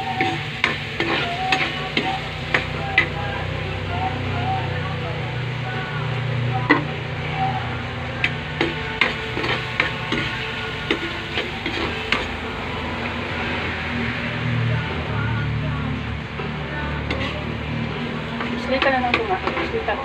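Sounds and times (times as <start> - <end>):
vegetables sizzling in a wok: 0.0 - 20.0
metal spoon clinking against wok: 18.4 - 19.8.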